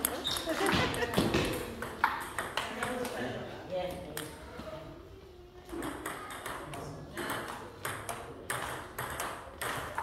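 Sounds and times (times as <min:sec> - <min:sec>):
table tennis ball clicking: 0:05.8 - 0:10.0.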